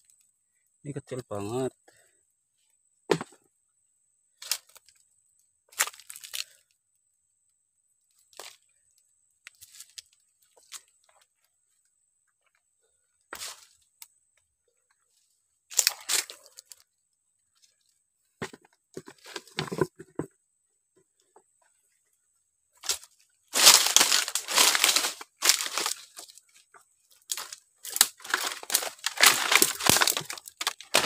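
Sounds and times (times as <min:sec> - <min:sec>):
dry leaves crunching and rustling: 0:22.8 - 0:26.5, 0:27.3 - 0:31.0.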